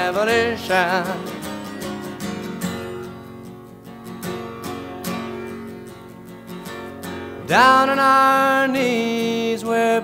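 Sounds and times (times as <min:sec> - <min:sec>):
acoustic guitar strumming: 0:00.0 - 0:10.0.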